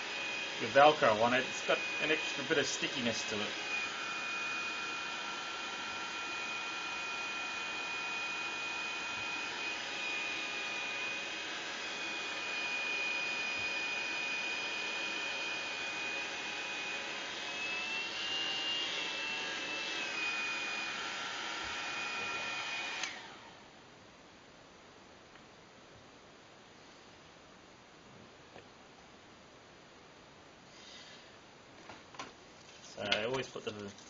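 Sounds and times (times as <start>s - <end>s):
hair dryer running: 0.0s - 23.6s
hair dryer switched off: 0.0s - 23.6s.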